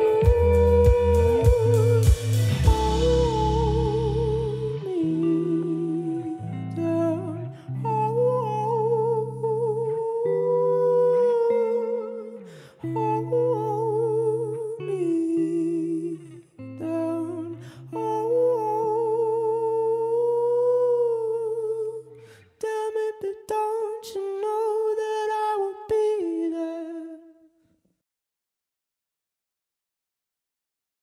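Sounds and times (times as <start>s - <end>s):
low bass notes: 0.0s - 7.4s
humming melody: 0.0s - 22.0s.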